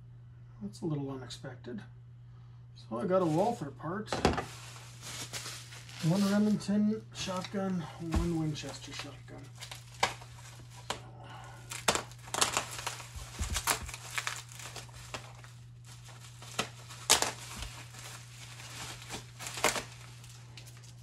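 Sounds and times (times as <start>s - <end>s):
bubble wrap crinkling: 3.2s - 3.6s, 4.2s - 21.0s
bubble wrap snapping: 4.3s - 6.6s, 7.2s - 21.0s.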